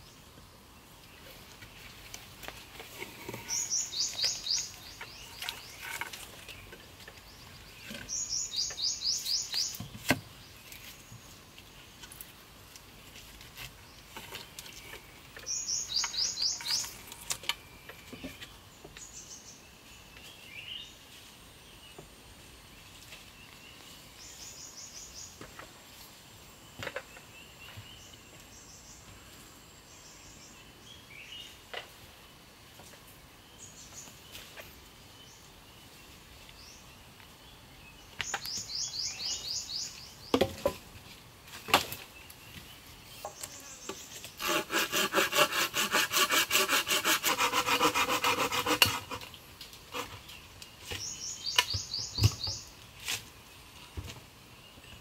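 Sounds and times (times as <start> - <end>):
quiet forest background: 0.0 - 55.0
small bird singing trills: 3.4 - 6.7, 7.3 - 9.9, 14.7 - 21.0, 36.6 - 40.3, 50.3 - 52.7.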